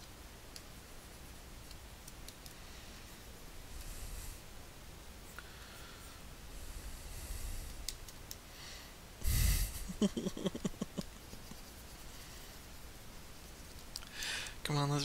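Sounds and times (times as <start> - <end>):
person snorting breath: 5.4 - 7.8, 8.6 - 10.2, 14.1 - 14.6
short choppy chuckles: 9.7 - 11.6.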